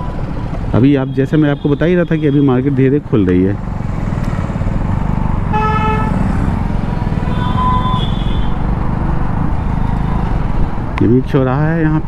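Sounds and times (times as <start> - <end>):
motorcycle engine running: 0.0 - 1.2, 3.0 - 10.6
road noise: 0.0 - 12.0
vehicle horn honking: 1.0 - 2.8, 5.5 - 6.2, 7.1 - 8.6
higher horn: 5.5 - 6.4.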